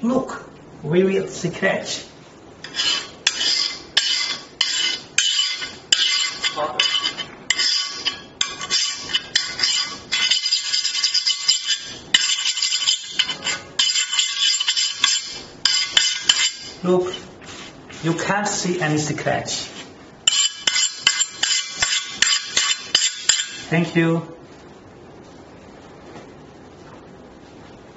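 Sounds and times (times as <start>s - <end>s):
tool scraping glass panel: 2.6s - 17.2s, 20.3s - 23.7s.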